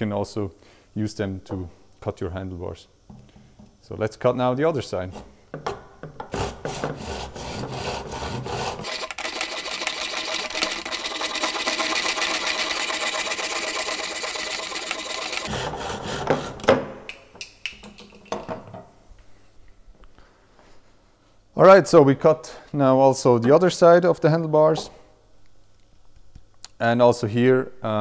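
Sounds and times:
hacksaw sawing: 6.3 - 16.7.

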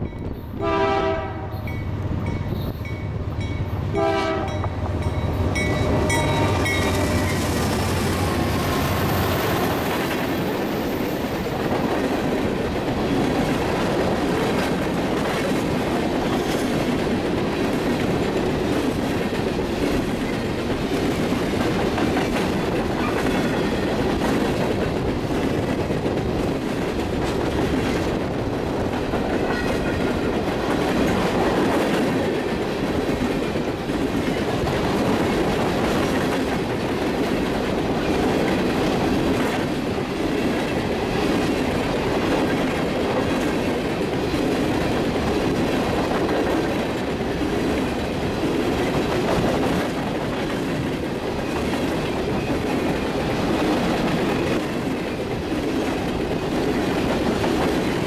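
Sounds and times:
rail cars rumbling and clattering: 0.0 - 58.0
locomotive horn blasts: 0.6 - 1.8, 3.9 - 4.8, 5.6 - 7.4, 29.4 - 30.3.

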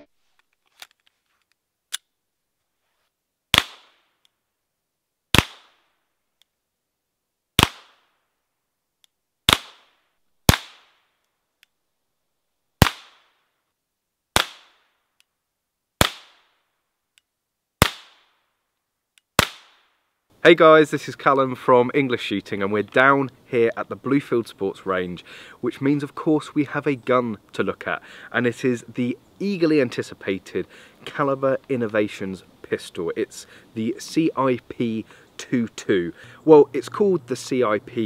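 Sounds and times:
pistol shots: 3.6 - 3.9, 7.6 - 8.0, 9.5 - 9.9, 10.5 - 10.9, 12.8 - 13.2.

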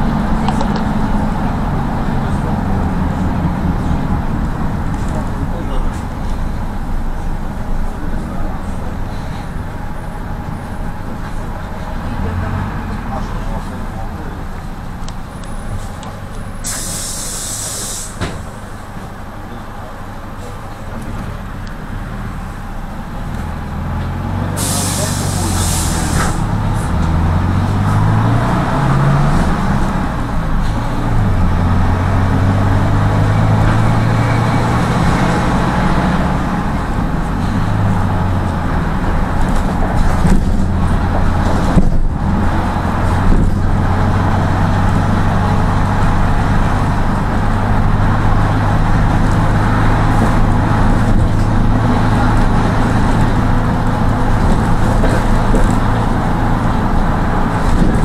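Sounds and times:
minibus engine pulling away: 0.0 - 58.0
road noise: 0.0 - 58.0.

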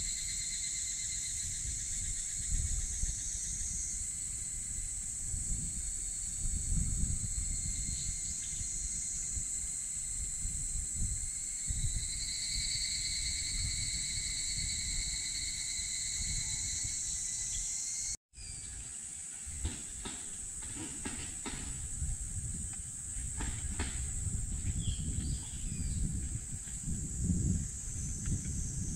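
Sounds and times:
shrill insect chorus: 0.0 - 28.9.

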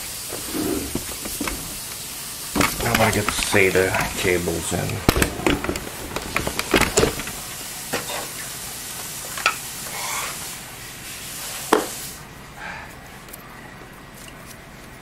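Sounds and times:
cables rustling: 0.3 - 7.5
plastic clicks and knocks: 4.9 - 7.4.

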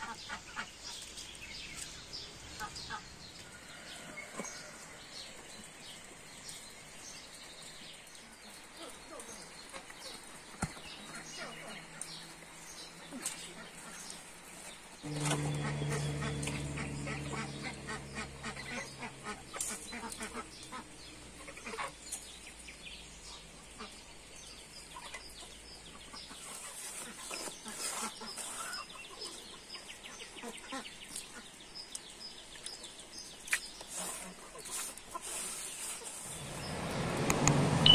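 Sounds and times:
steady low hum: 15.0 - 21.4
poultry calling: 15.0 - 22.0.

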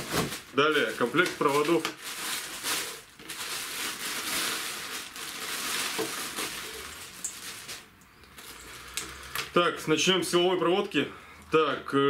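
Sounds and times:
plastic bag crinkling: 0.0 - 9.5.

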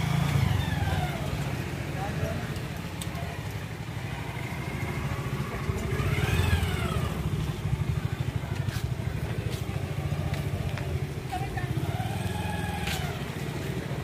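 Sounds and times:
small motorcycle engine running: 0.0 - 2.4, 3.4 - 14.0.

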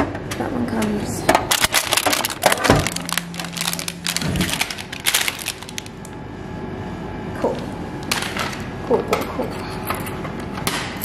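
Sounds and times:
plastic wrapper crinkling: 1.5 - 6.2.

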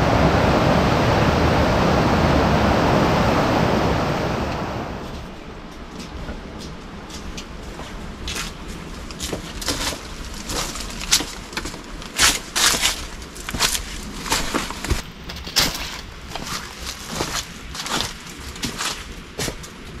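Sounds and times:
footsteps crunching on leaves and stones: 5.1 - 20.0.

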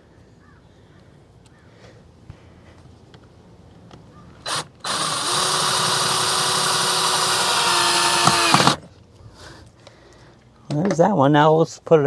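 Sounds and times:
cordless drill motor: 4.4 - 8.8
drill clicks: 4.4 - 8.8.

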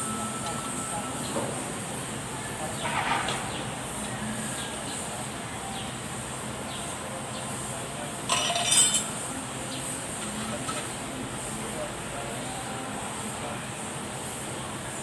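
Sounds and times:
workshop background noise: 0.0 - 15.0
metal tool clinking: 8.3 - 9.1
ringing metal clatter: 8.3 - 9.1.

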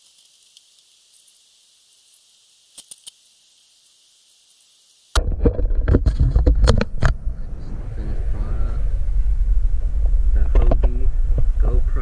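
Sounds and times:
sharp knocks and clunks: 5.2 - 7.2
wind rumble on microphone: 5.2 - 12.0.

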